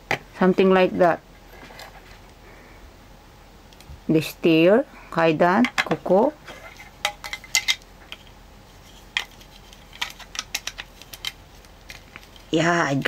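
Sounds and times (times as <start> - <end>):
plastic toy parts clicking: 9.2 - 12.5.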